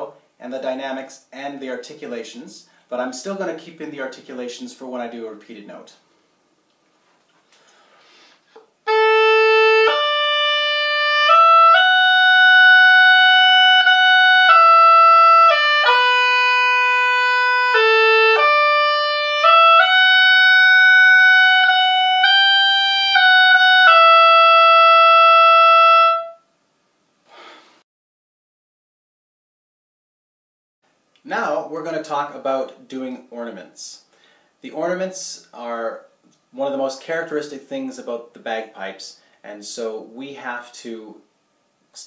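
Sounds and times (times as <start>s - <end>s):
oboe playing a melody: 8.8s - 26.5s.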